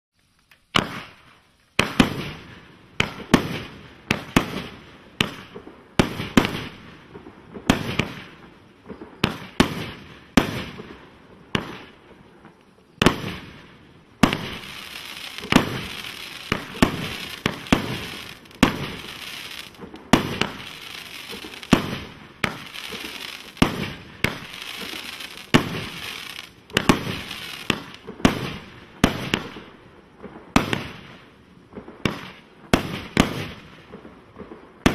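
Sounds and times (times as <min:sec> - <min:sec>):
firework crackle: 0:00.2 - 0:34.9
firework cake shots: 0:14.2 - 0:29.6.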